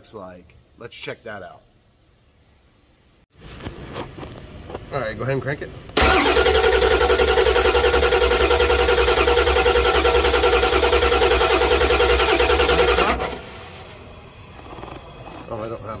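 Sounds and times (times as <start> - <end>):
diesel engine cranking: 6.0 - 16.0.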